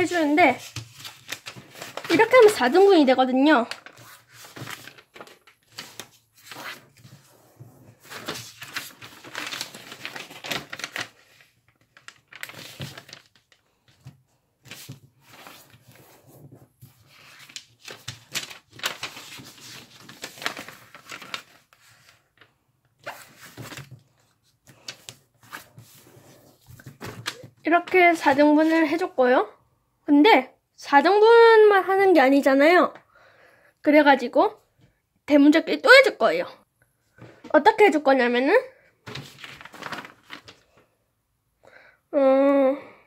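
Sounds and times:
paper rustling and crinkling: 0.0s - 29.1s, 39.0s - 40.9s
fingers sweeping along paper folds: 3.6s - 13.4s, 14.7s - 22.1s, 39.1s - 40.6s.

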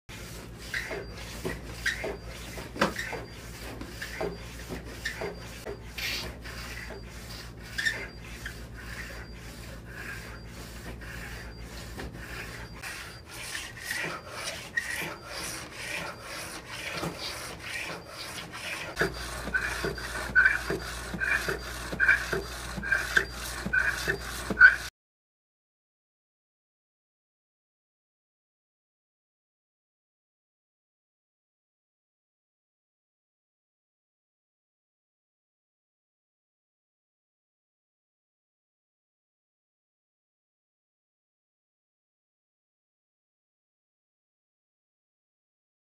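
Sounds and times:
low motor hum: 0.1s - 24.8s.

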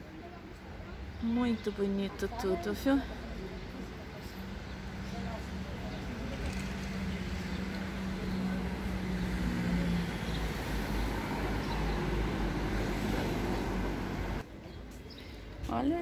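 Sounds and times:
cars and van passing: 1.0s - 14.5s
steady engine hum: 3.0s - 14.4s.

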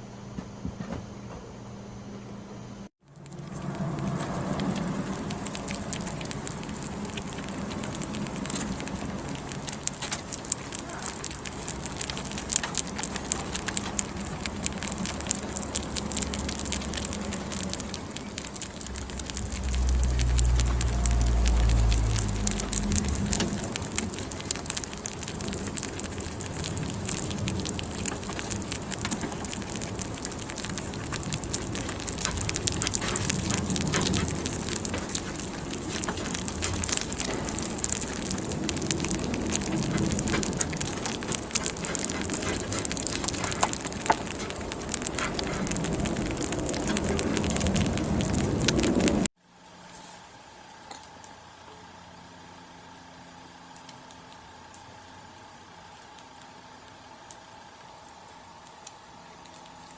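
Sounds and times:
low rumble: 3.0s - 49.3s
rabbits chewing: 3.1s - 50.2s.

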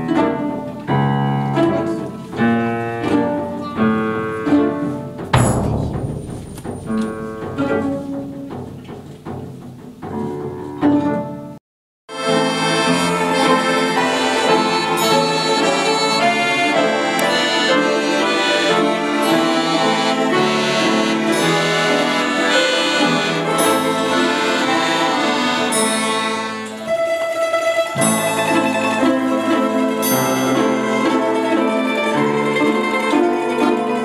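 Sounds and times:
orchestral music: 12.2s - 34.0s.

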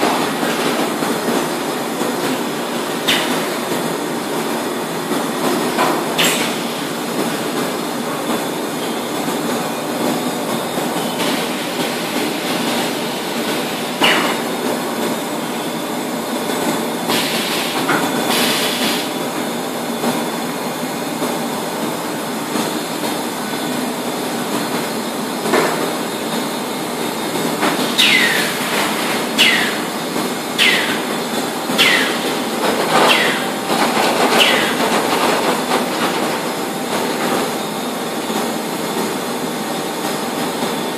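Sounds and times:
conveyors and drive motors: 27.9s - 36.9s.

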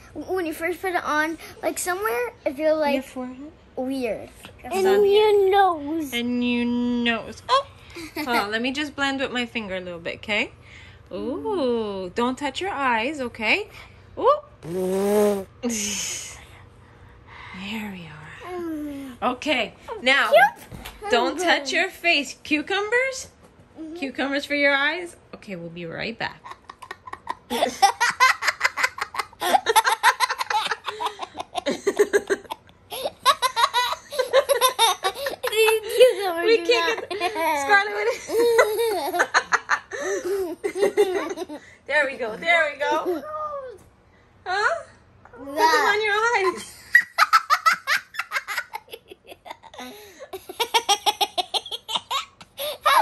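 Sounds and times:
girl giggling: 26.4s - 41.6s, 42.8s - 43.7s, 45.5s - 53.0s.

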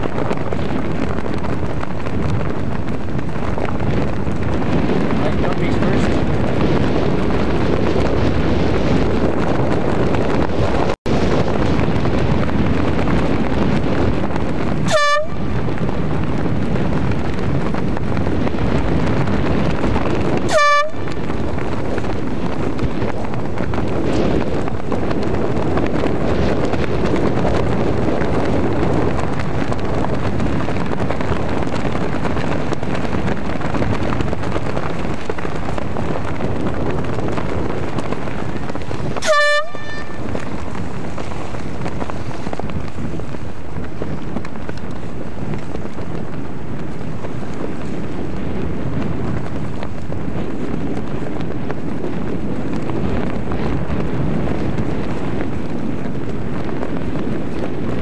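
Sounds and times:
wind and water rushing: 0.0s - 58.0s
horn blasts: 14.9s - 15.5s, 20.5s - 21.1s, 39.2s - 40.3s.

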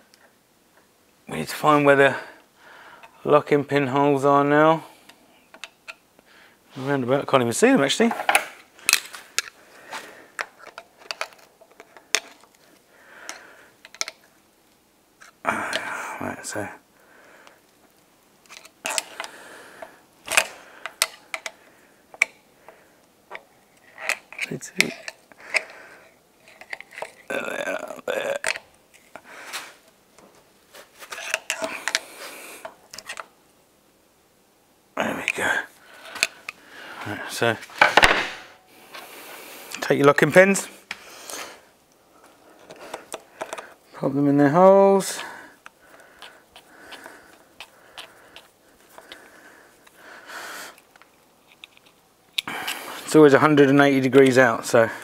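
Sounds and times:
steel tool scraping and clicking: 45.6s - 49.2s.

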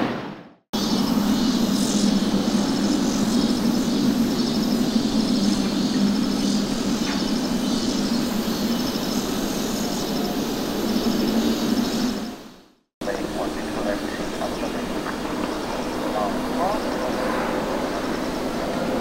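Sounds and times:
distant jet engines rumbling: 0.0s - 19.0s
high chirping trills: 0.8s - 12.4s.

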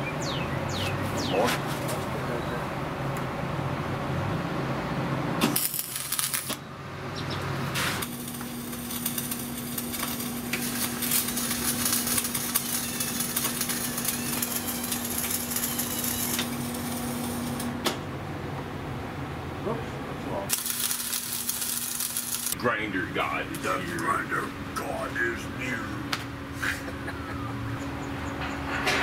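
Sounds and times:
electric arc welding crackle: 5.4s - 6.6s, 7.7s - 17.8s, 20.5s - 22.6s.

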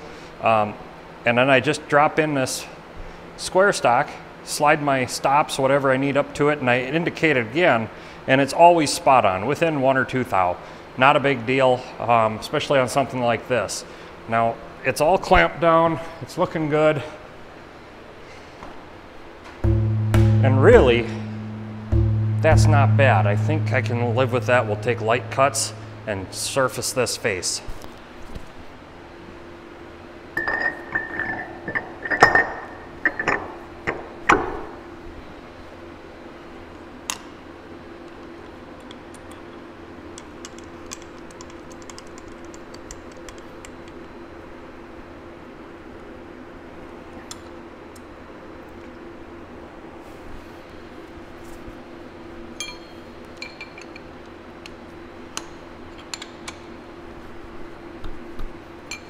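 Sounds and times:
steady machine hum: 19.6s - 27.6s
metal clinks and knocks: 30.4s - 34.0s
tool clinking on metal: 52.6s - 54.0s.

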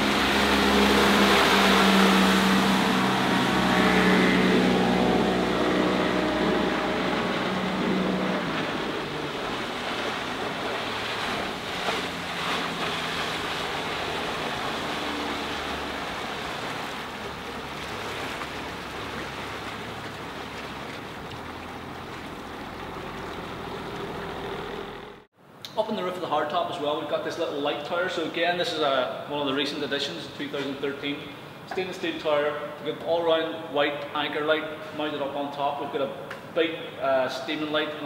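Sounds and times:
outboard motor running: 0.0s - 25.3s
water rushing from boat hull: 0.0s - 25.3s.

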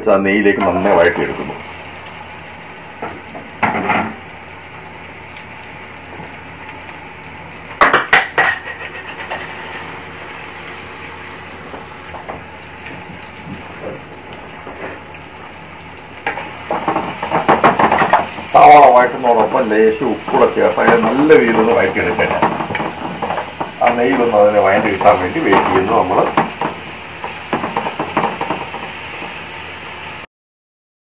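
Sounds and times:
onions sizzling in a pot: 0.6s - 30.3s
metal cookware clattering: 7.8s - 9.5s.

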